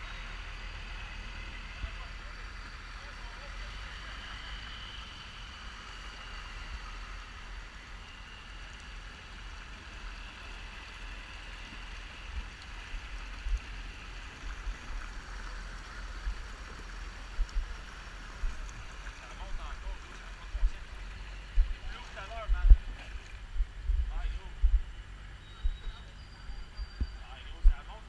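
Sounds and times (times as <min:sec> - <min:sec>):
floodwater sloshing and gurgling: 0:08.7 - 0:23.6.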